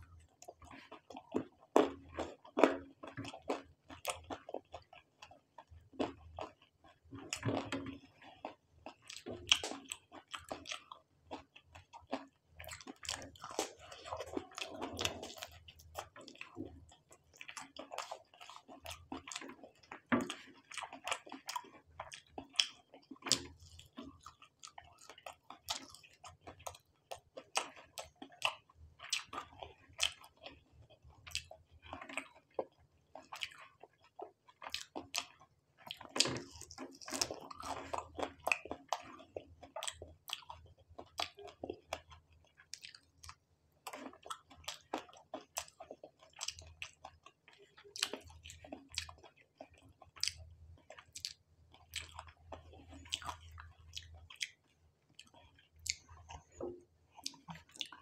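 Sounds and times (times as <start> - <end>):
man chewing noodles: 0.1 - 58.0
wet mouth smacks and clicks: 55.2 - 58.0.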